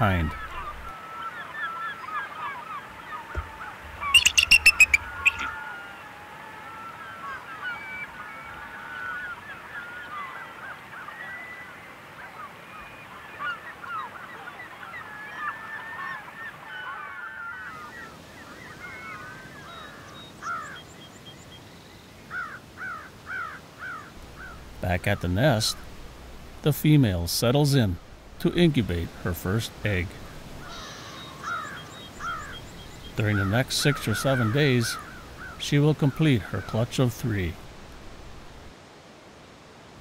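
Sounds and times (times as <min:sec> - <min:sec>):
eagles squealing: 0:03.3 - 0:06.0, 0:33.2 - 0:36.7
eagle chattering call: 0:03.9 - 0:05.6, 0:28.4 - 0:37.6.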